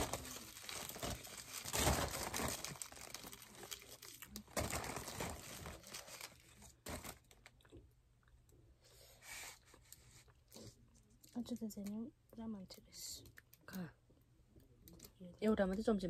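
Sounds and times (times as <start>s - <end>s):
plastic wrapper crinkling and tearing: 0.0s - 7.7s.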